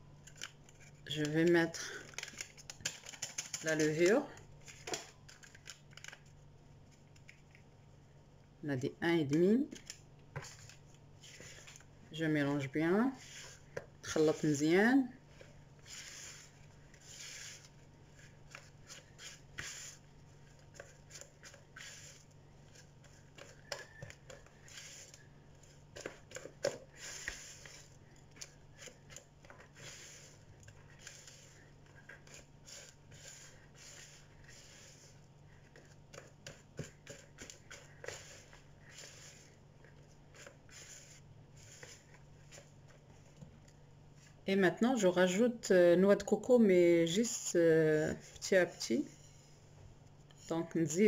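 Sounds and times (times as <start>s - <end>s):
faint steady hum: 0.0s - 51.0s
spatula scraping dough in a bowl: 15.8s - 43.1s.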